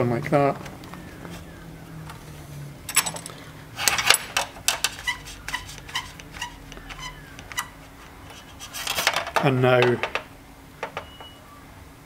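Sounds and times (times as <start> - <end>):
bar clamp knocking: 8.8 - 11.1.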